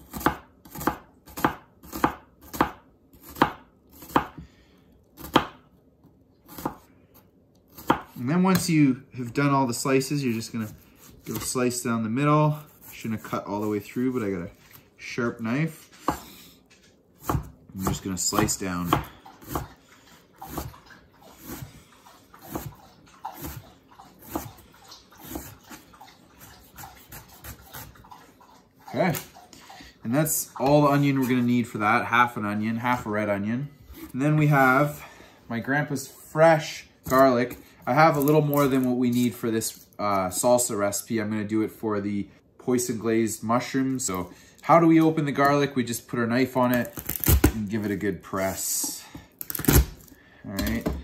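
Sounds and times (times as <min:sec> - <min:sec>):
knife chopping on cutting board: 0:00.0 - 0:04.4, 0:05.2 - 0:05.6, 0:06.5 - 0:06.9, 0:07.7 - 0:08.7, 0:17.2 - 0:19.7, 0:20.5 - 0:20.7, 0:22.4 - 0:22.7, 0:24.2 - 0:24.6
knife slicing onion: 0:00.0 - 0:04.5, 0:05.2 - 0:05.7, 0:06.4 - 0:15.0, 0:17.2 - 0:28.1.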